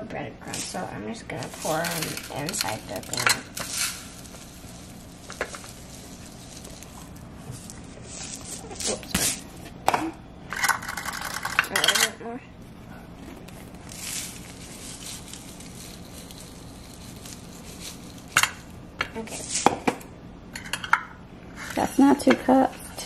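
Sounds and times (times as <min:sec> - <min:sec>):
breadcrumbs pattering into a cup: 0:01.4 - 0:09.4, 0:13.3 - 0:19.7.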